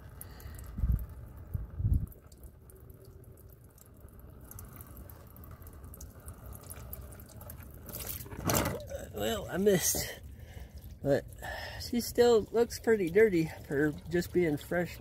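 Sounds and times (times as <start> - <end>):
oil trickling into drain pan: 0.0 - 15.0
wind buffeting microphone: 0.7 - 2.3.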